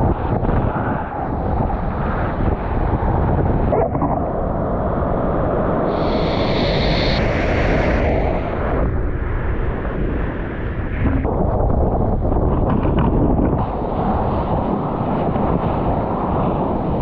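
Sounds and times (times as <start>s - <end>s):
wind buffeting microphone: 0.0s - 17.0s
spray hissing: 5.9s - 8.6s.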